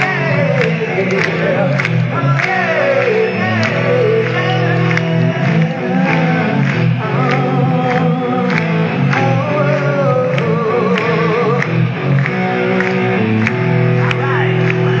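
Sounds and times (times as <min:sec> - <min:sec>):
man singing lead vocal: 0:00.0 - 0:13.2
live hard rock band: 0:00.0 - 0:15.0.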